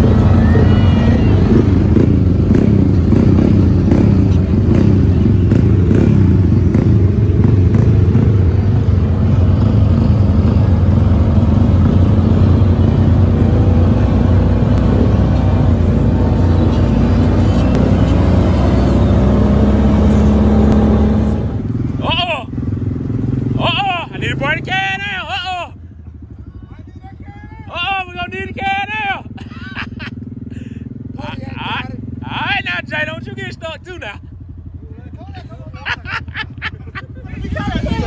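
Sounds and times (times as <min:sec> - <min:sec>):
utility vehicle engines droning: 0:00.0 - 0:38.0.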